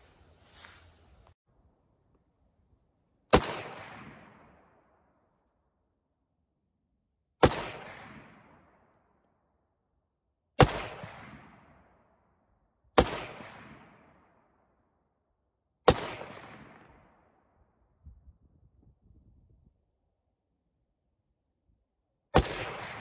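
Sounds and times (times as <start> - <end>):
rifle shots echoing: 3.3 - 5.0, 7.4 - 8.8, 10.6 - 12.0, 13.0 - 14.4, 15.9 - 17.3, 22.3 - 23.0.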